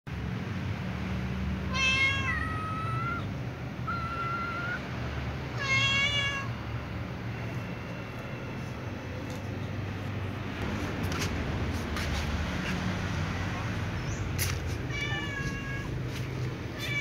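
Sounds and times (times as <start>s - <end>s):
cat meowing: 1.7s - 4.8s, 5.6s - 6.5s, 14.8s - 16.0s, 16.7s - 17.0s.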